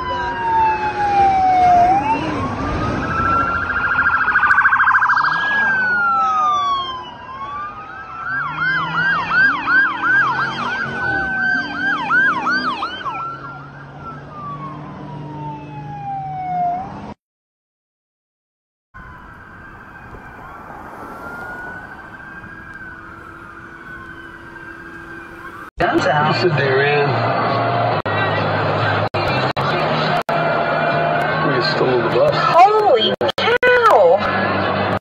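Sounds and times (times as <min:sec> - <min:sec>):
siren rapid warble: 0:00.0 - 0:17.1, 0:19.0 - 0:25.7
police siren yelp: 0:00.0 - 0:17.2, 0:19.0 - 0:26.4
police sirens wailing: 0:00.0 - 0:17.2, 0:19.0 - 0:35.0.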